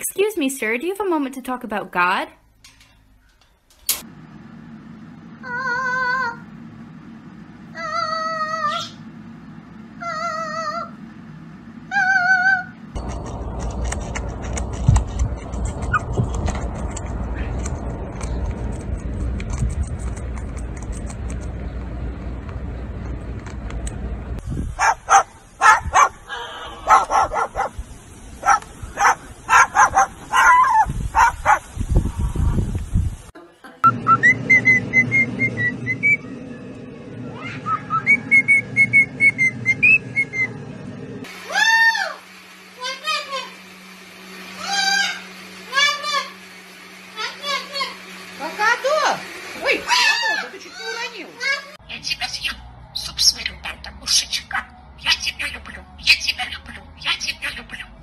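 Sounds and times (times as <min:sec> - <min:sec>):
sharp click: 0:03.7 - 0:04.1
low rumble: 0:13.0 - 0:24.8, 0:33.9 - 0:41.3
cockatoo barking and yipping: 0:24.7 - 0:27.8, 0:28.4 - 0:31.8, 0:49.6 - 0:58.0
cockatiel calling: 0:51.9 - 0:58.0.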